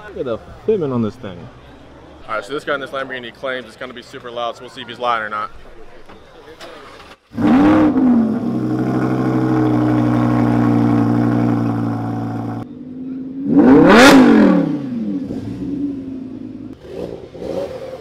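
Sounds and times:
sports car engine revving and idling: 7.4 - 18.0.

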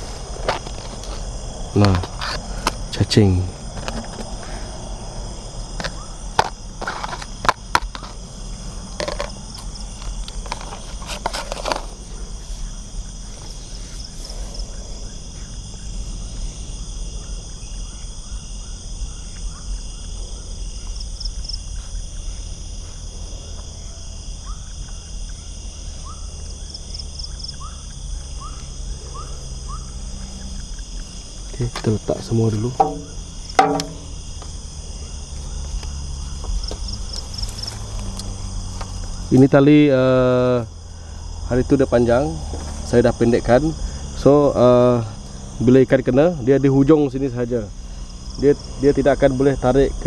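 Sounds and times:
crickets and insects trilling: 0.0 - 50.0
handling clicks and rustles: 8.9 - 12.1, 31.6 - 34.5.

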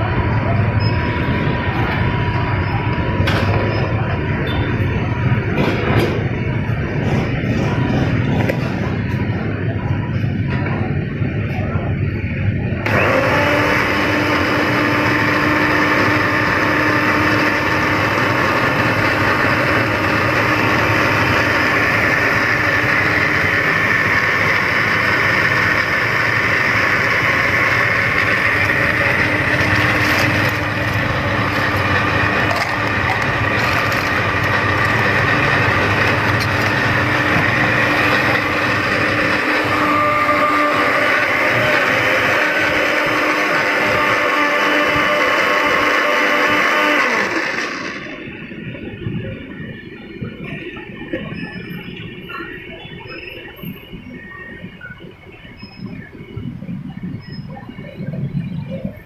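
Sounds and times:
electric blender running: 12.8 - 48.5.

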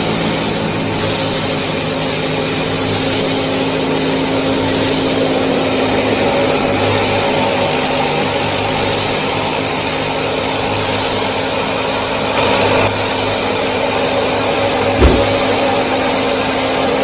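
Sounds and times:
mechanical engine drone: 0.0 - 17.0.

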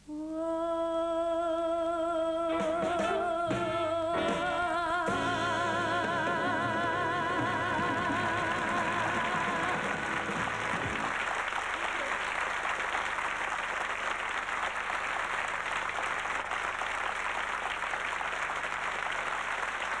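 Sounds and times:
band and sung note: 2.5 - 11.1
audience applauding: 5.1 - 20.0.

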